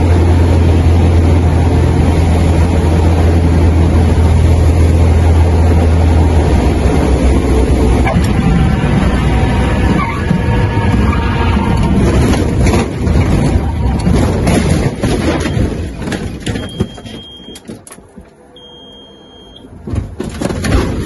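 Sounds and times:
plane piston engine and propeller: 0.0s - 13.2s
knocks and thuds: 11.8s - 18.2s, 19.8s - 21.0s
high steady warning tone: 18.5s - 19.7s.

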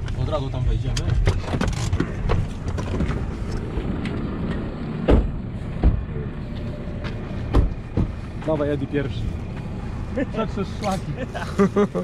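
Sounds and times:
vehicle rumbling on dirt track: 0.0s - 12.0s
body rattles and clicks: 0.8s - 4.7s
loud thump: 5.0s - 6.1s, 7.5s - 8.2s.

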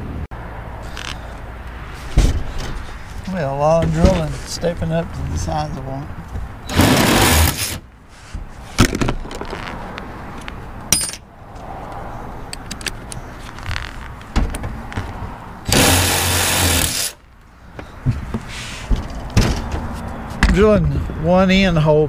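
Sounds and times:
cordless drill drilling metal: 6.7s - 7.8s, 15.7s - 17.2s.

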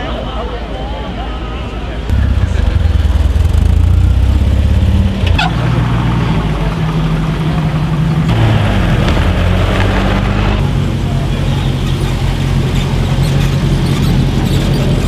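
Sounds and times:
cars driving slowly past: 2.1s - 15.0s.

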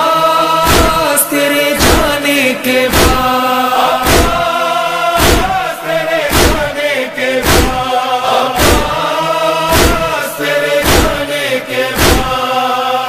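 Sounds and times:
male chorus singing lament: 0.0s - 13.0s
chest-beating thumps: 0.7s - 1.1s, 1.8s - 2.2s, 2.9s - 3.3s, 4.0s - 4.5s, 5.2s - 5.6s, 6.2s - 6.8s, 7.4s - 7.9s, 8.6s - 9.0s, 9.7s - 10.2s, 10.8s - 11.3s, 12.0s - 12.4s.

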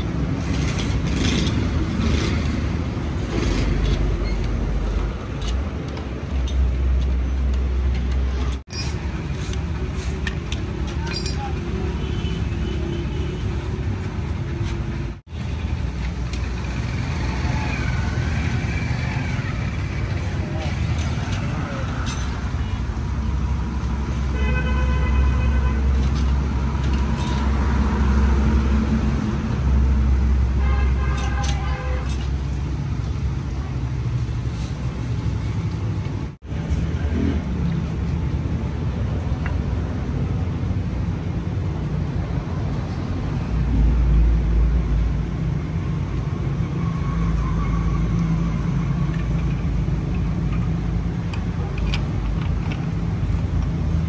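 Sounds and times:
road traffic rumble: 0.0s - 54.0s
vehicle horns: 24.2s - 26.2s, 30.5s - 32.2s.

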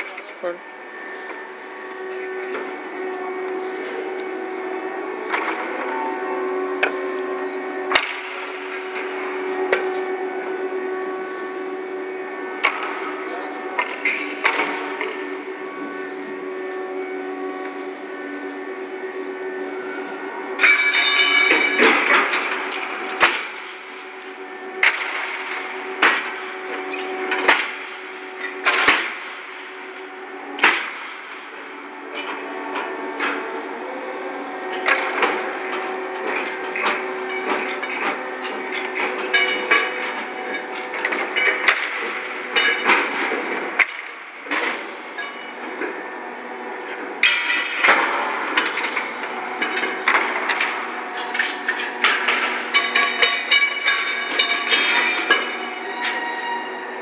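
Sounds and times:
steady machinery hum: 0.0s - 57.0s
steel rails ringing: 0.0s - 57.0s
metal clamps clanking on rails: 20.6s - 23.9s, 34.7s - 46.0s, 46.9s - 56.9s.

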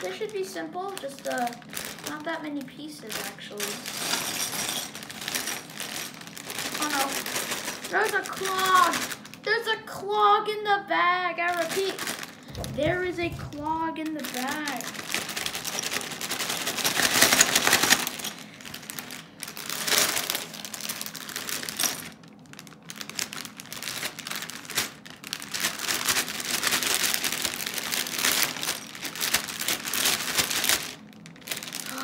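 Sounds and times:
plastic bag crinkling: 0.0s - 9.6s, 11.4s - 32.0s
plastic bricks rattling: 11.5s - 22.2s, 22.9s - 32.0s.

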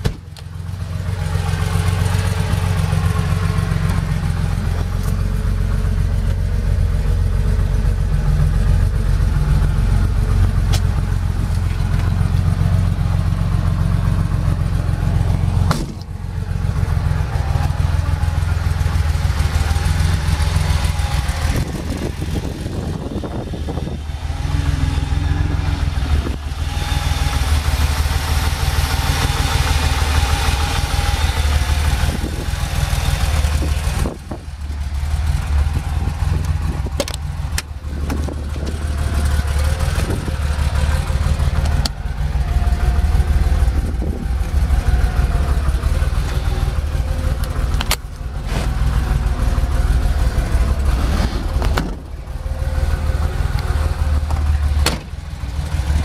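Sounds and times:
car engine idling: 0.0s - 56.0s
sharp clicks and knocks: 36.4s - 38.7s, 47.4s - 48.2s.

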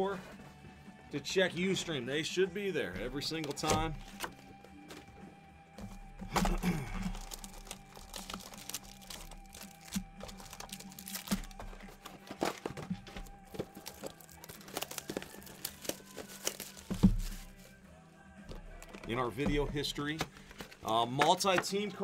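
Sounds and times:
wrapping crinkling and tearing: 6.3s - 17.8s
cardboard knocking on table: 16.9s - 17.4s.

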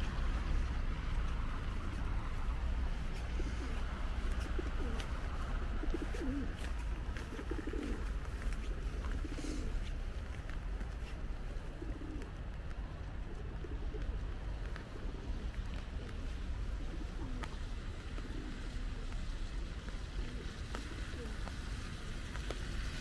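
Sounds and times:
steady low rumble: 0.0s - 23.0s
pigeon cooing: 3.2s - 8.2s, 9.0s - 9.8s, 11.6s - 12.4s, 13.2s - 17.5s
raindrops ticking on umbrella: 17.4s - 23.0s.

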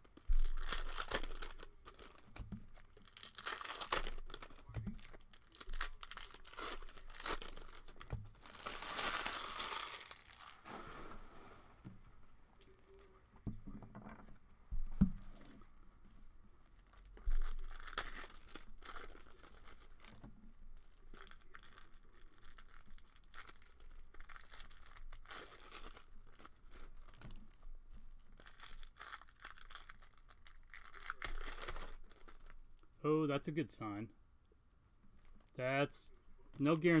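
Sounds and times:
cellophane wrappers tearing and crinkling: 0.0s - 11.1s, 16.7s - 20.2s, 20.8s - 27.6s, 28.4s - 32.6s.

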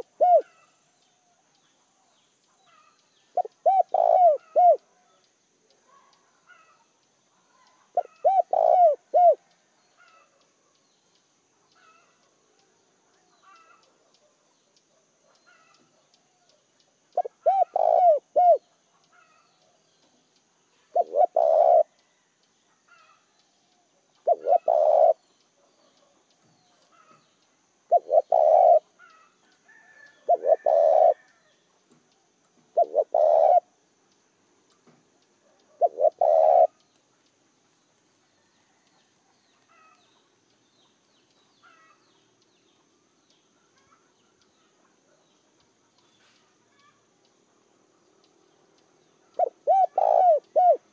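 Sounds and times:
dove cooing: 0.0s - 0.7s, 2.7s - 5.2s, 7.4s - 10.3s, 17.2s - 19.4s, 20.9s - 21.9s, 24.2s - 26.2s, 27.9s - 31.3s, 32.7s - 33.8s, 35.4s - 36.8s, 49.2s - 50.9s.

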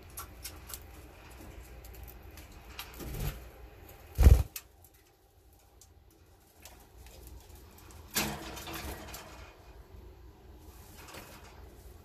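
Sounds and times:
bird wingbeats: 4.1s - 4.6s.

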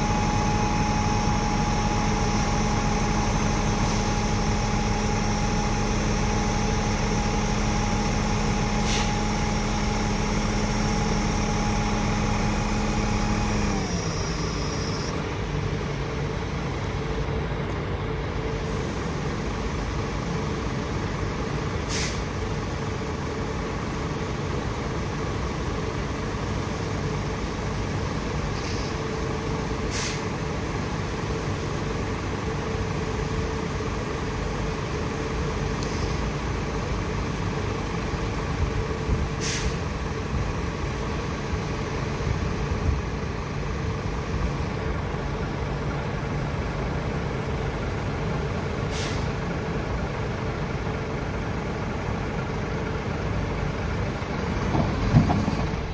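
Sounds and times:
diesel engine revving with whine: 0.0s - 17.6s
short sharp air hisses: 8.8s - 9.2s, 21.9s - 22.3s, 28.6s - 29.0s, 29.9s - 30.3s, 39.4s - 39.8s, 48.9s - 49.4s.

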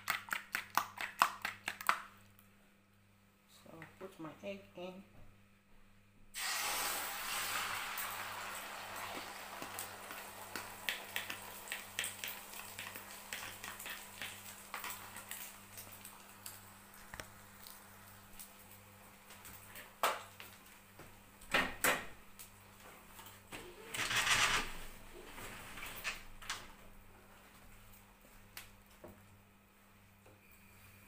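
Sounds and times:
egg sizzling in oil: 6.3s - 20.7s.

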